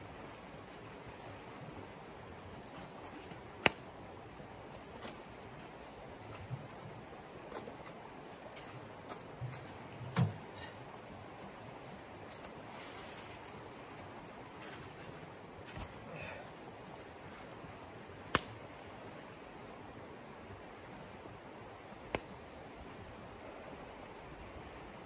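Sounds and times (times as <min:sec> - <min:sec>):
light taps and rubbing: 0:04.8 - 0:10.4
camp gear knocking: 0:09.4 - 0:10.5.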